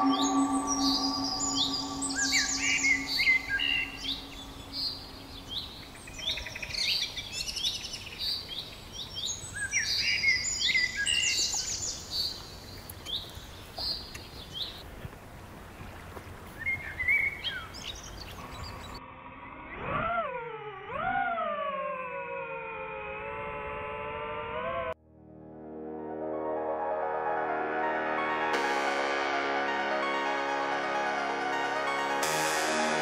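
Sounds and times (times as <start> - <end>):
whine sliding in pitch: 0.0 - 5.6
songbirds chirping and singing: 0.0 - 14.8.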